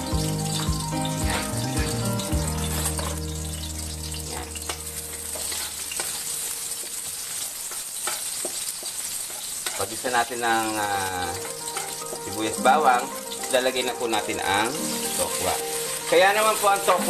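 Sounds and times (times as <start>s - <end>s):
low background music: 0.0s - 6.6s, 10.7s - 17.0s
garlic and onion sizzling in oil: 0.0s - 17.0s
wooden spatula scraping metal wok: 2.6s - 12.4s.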